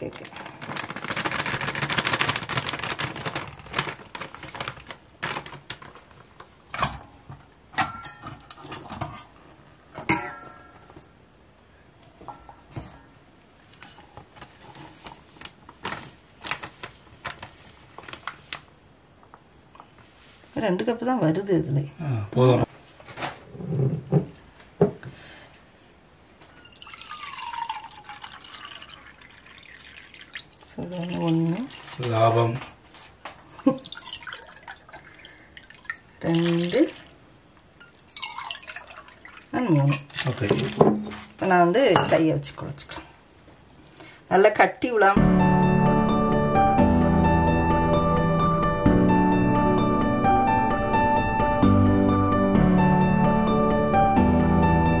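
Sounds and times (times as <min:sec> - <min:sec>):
flour pouring from packet: 0:00.3 - 0:05.6
water pouring into a mug: 0:26.6 - 0:32.1, 0:33.5 - 0:37.1, 0:37.8 - 0:40.9.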